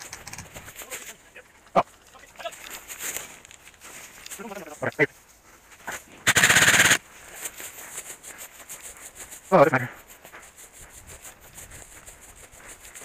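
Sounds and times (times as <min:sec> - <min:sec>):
dry grass rustling against camera: 0:00.0 - 0:13.0
loud burst of noise: 0:06.3 - 0:07.0.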